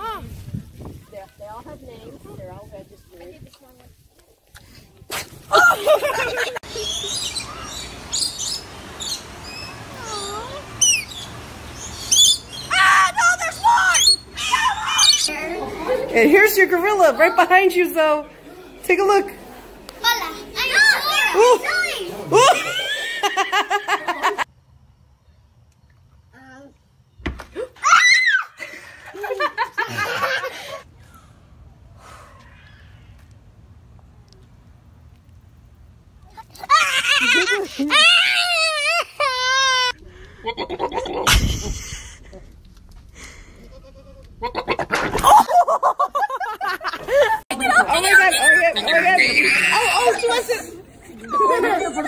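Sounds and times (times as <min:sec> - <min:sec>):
people laughing: 0:05.5 - 0:07.2, 0:14.6 - 0:16.3, 0:21.0 - 0:24.5, 0:28.6 - 0:30.8, 0:36.7 - 0:39.8, 0:40.4 - 0:42.5, 0:44.4 - 0:52.0
parrot chirping and squawking: 0:06.7 - 0:12.8, 0:13.9 - 0:15.3
dull thump: 0:27.2 - 0:27.6
loud wavering cry: 0:48.2 - 0:50.4.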